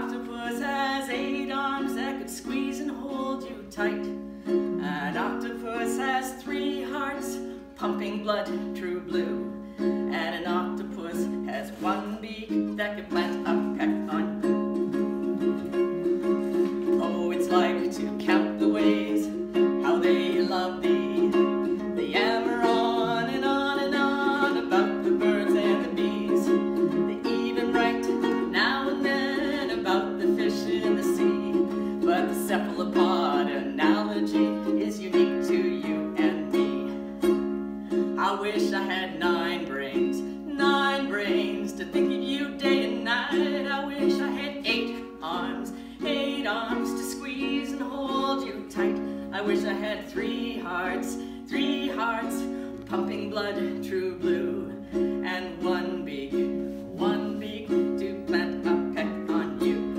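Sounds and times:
ukuleles strumming chords: 0.0s - 59.9s
woman singing: 0.0s - 59.9s.

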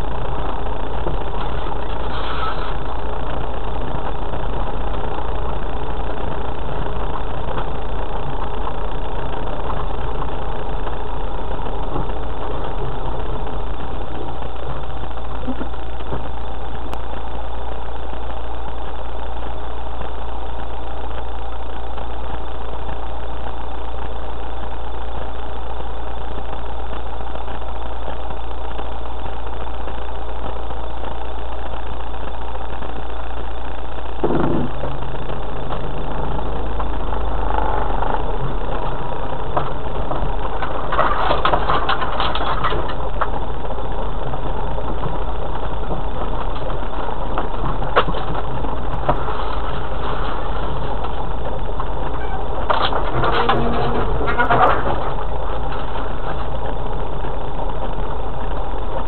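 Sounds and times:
off-road vehicle engine: 0.0s - 59.0s
rattling jolts: 34.2s - 57.2s.

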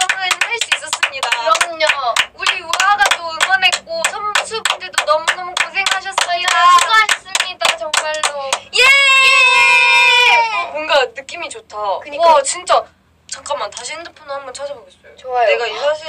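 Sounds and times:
hands clapping in rhythm: 0.0s - 8.7s
women singing: 0.0s - 8.7s.

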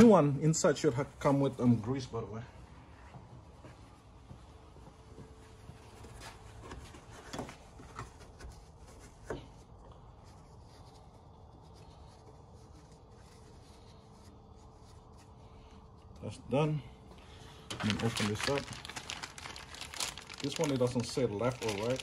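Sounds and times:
hands rubbing and handling: 17.7s - 22.0s.

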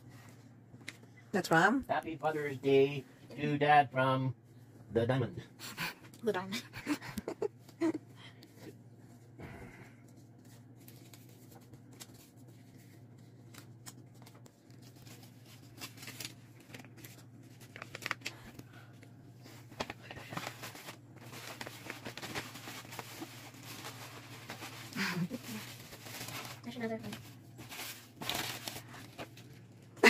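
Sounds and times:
steady low hum: 0.0s - 30.0s
wrapping paper rustling and tearing: 10.1s - 29.7s.

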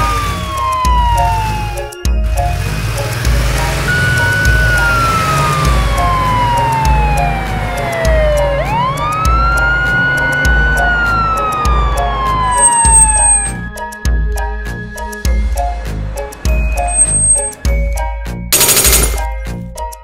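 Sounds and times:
police siren wailing: 0.0s - 2.2s, 3.8s - 13.6s
background music with steady beat: 0.0s - 20.0s.

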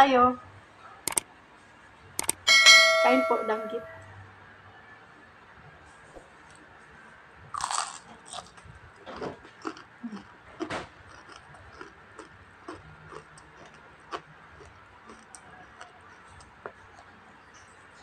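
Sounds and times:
crunching bite: 7.5s - 17.1s
chewing with crunches: 7.5s - 18.0s
wet mouth sounds: 9.6s - 17.1s.

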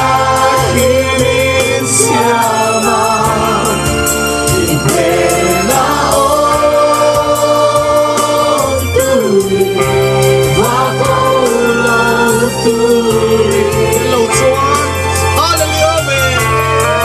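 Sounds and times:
man singing into a microphone: 0.0s - 6.7s, 10.5s - 15.2s, 16.4s - 17.0s
congregation singing along: 0.0s - 15.4s, 16.4s - 17.0s
band with bass and percussion: 0.0s - 17.0s.

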